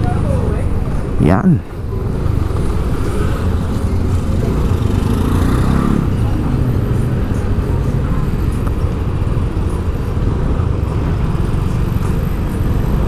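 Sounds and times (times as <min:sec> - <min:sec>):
low rumble of road traffic: 0:00.0 - 0:13.0.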